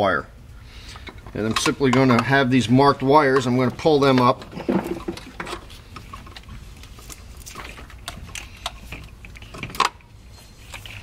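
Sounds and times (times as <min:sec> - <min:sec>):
plastic wires clicking and rustling: 0:03.0 - 0:11.0.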